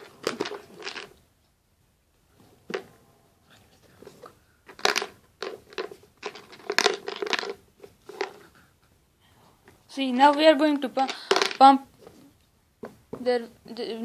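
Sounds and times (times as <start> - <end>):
plastic container knocks and crinkles: 4.7 - 8.4.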